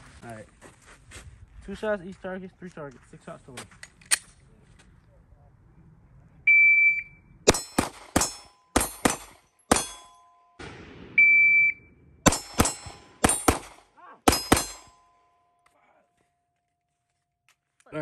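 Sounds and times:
steel targets ringing: 7.5 - 10.6, 12.3 - 15.6
pistol shots: 7.5 - 11.2, 12.2 - 15.1.

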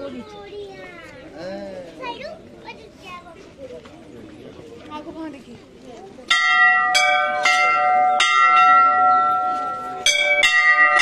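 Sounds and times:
metal bells struck: 6.3 - 11.0.

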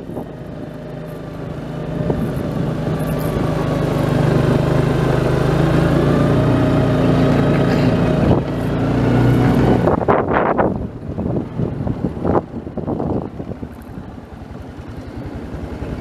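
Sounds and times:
vehicle engine running: 0.0 - 16.0
wind on microphone: 2.0 - 2.6, 9.6 - 13.7.

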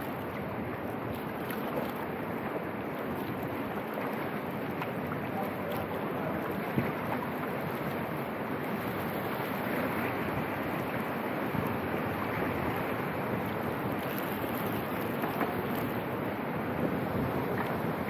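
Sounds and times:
creek water rushing: 0.0 - 18.0
wind on microphone: 8.7 - 18.0.

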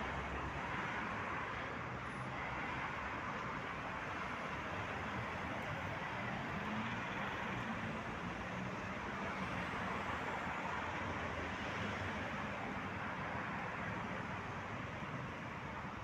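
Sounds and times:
cars passing on city street: 0.0 - 16.0.

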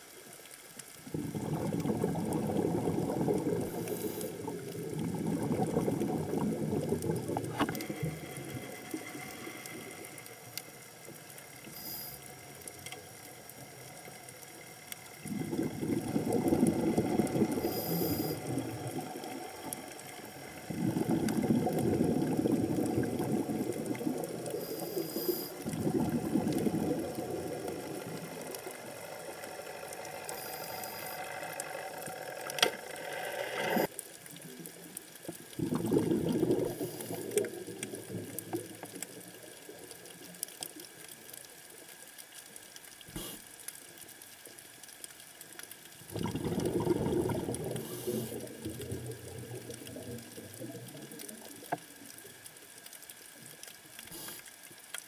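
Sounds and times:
diver's exhaled bubbles: 1.1 - 9.8, 15.2 - 19.6, 20.6 - 29.0, 35.6 - 38.8, 46.0 - 51.5.

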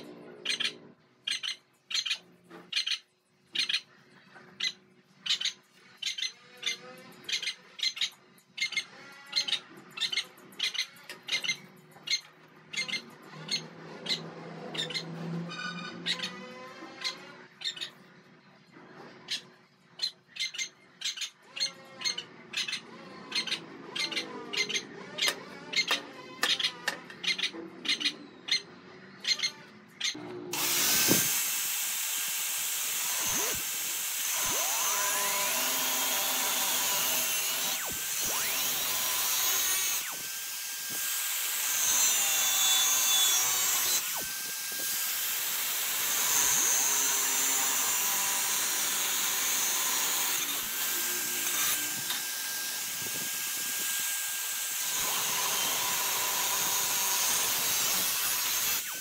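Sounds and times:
angle grinder cutting steel tube: 30.5 - 59.0.

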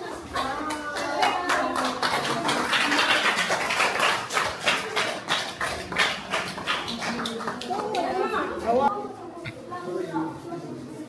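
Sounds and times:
hands clapping applause: 0.0 - 8.2.

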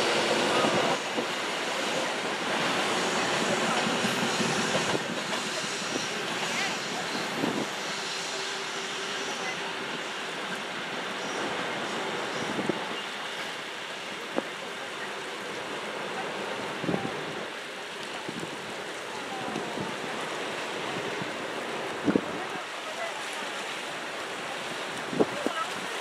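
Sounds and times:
distant train: 0.0 - 26.0
waves washing on rocky shore: 0.0 - 26.0
wind on microphone: 3.1 - 7.9, 20.9 - 22.6, 24.9 - 26.0.

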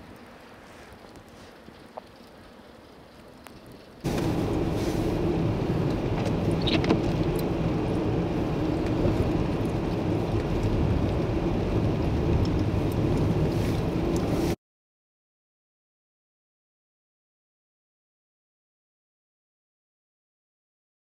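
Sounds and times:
tyre and road noise: 0.0 - 14.6
car engine drone: 4.0 - 14.6.

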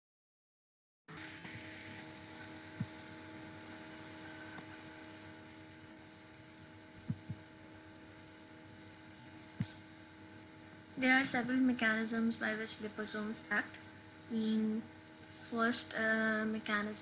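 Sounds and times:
electrical hum: 1.1 - 17.0
soft low thumps: 7.0 - 7.4.

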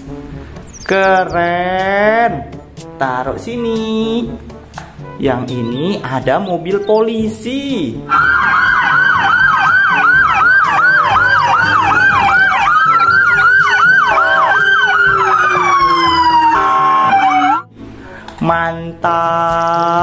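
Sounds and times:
police siren wail: 8.1 - 17.7
police siren yelp: 8.1 - 17.7
short blaring tone: 10.7 - 17.7.

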